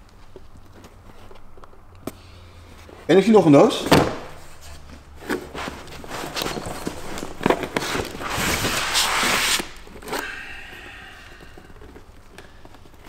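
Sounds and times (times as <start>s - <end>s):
cardboard scraping against cardboard: 4.5s - 10.0s.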